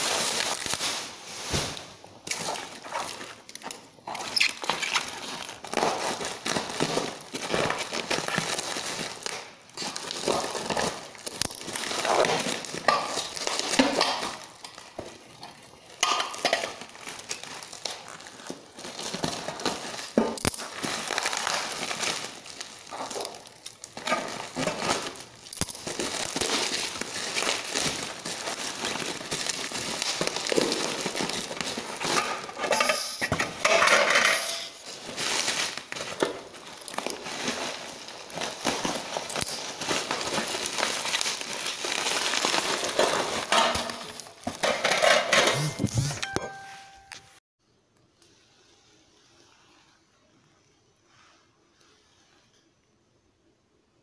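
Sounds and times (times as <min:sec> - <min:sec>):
packing wrap crinkling: 0:00.0 - 0:34.0, 0:34.6 - 0:47.3.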